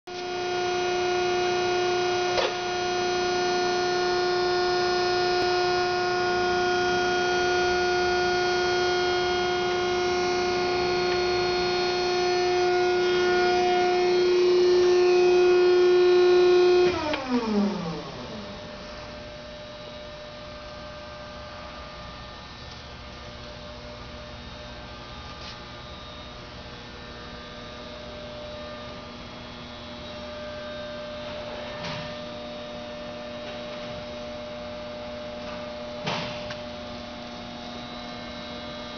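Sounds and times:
hydraulic pump motor whining: 0.1 - 23.3
faint hum: 0.2 - 38.9.

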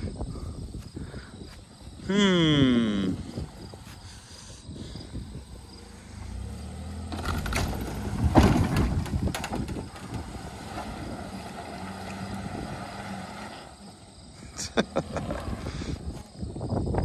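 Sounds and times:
truck engine pulling under load: 3.2 - 16.4.

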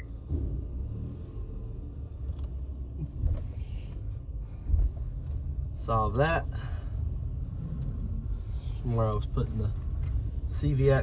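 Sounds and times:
car rumble from inside: 0.0 - 11.0.

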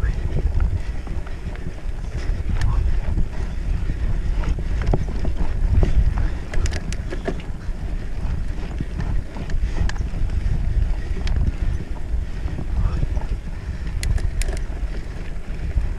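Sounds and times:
bike rattling over rough ground: 0.0 - 15.9
wind buffeting microphone: 0.0 - 15.9
sharp clicks: 6.5 - 7.5, 13.8 - 14.7.

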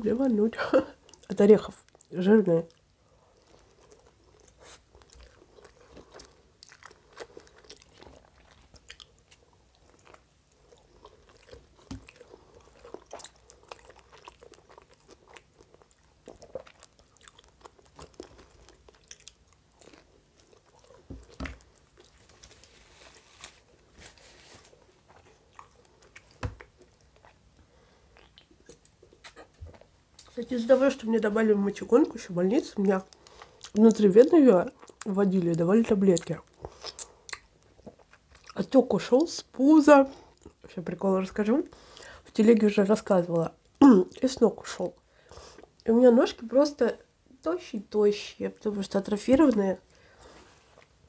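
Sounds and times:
wet chewing with crunches: 1.0 - 31.1, 32.0 - 39.3.

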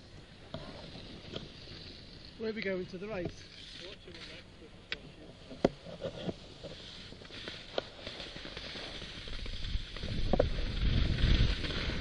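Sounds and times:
skis sliding over snow: 5.8 - 12.0
wind buffeting microphone: 9.4 - 12.0.

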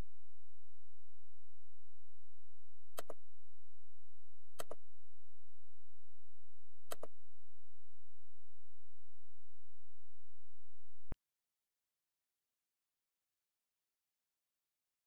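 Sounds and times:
computer mouse clicking: 3.0 - 3.2, 4.6 - 4.8, 6.9 - 7.1.

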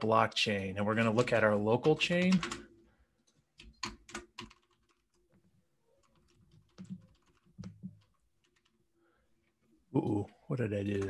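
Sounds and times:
typing on a keyboard: 1.0 - 2.6, 3.6 - 8.8.

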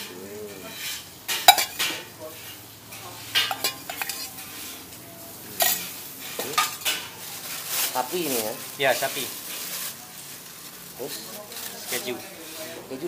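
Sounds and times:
metal spatula clanking on griddle: 0.0 - 7.3
meat sizzling: 0.0 - 13.0.

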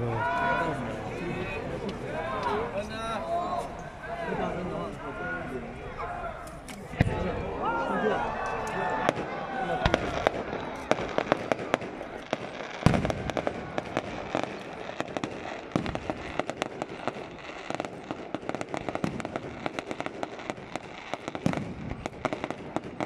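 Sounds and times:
fireworks crackling: 0.2 - 23.0
fireworks booms: 6.9 - 7.7, 8.4 - 23.0.

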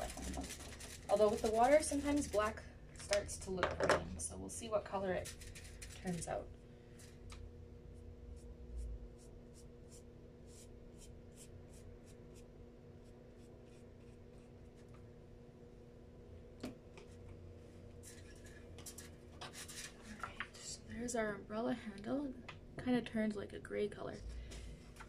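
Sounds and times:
steady low hum: 0.0 - 25.0
paintbrush stroking on paper: 8.3 - 14.9.

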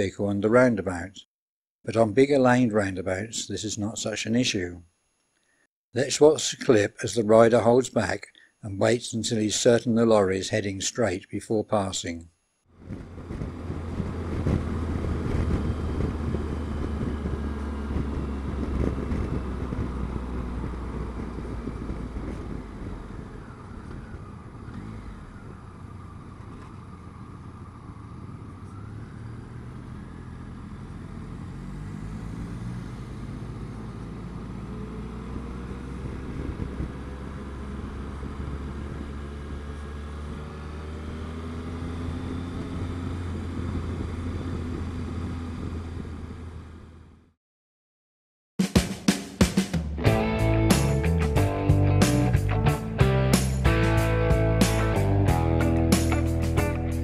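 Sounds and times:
road noise: 12.7 - 47.3, 50.0 - 57.0
wind noise: 12.8 - 28.9, 35.4 - 39.6, 42.4 - 46.2
motorcycle engine running: 12.8 - 31.9, 50.1 - 57.0.

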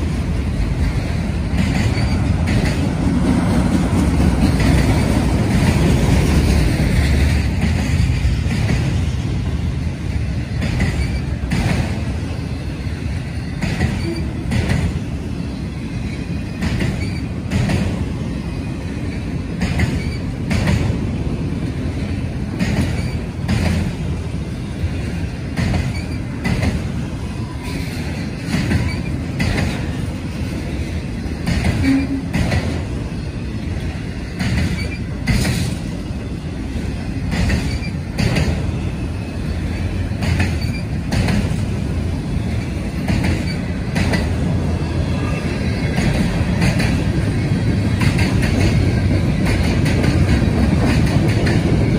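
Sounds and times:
train wheels rumbling on rail: 0.0 - 51.9
sharp rail clicks: 0.6 - 9.1, 10.6 - 12.3, 13.6 - 15.1, 16.6 - 18.1, 19.5 - 21.0, 22.5 - 24.1, 25.5 - 27.1, 28.0 - 30.3, 31.4 - 32.9, 34.3 - 36.0, 37.2 - 38.8, 40.1 - 44.5, 45.8 - 51.9.

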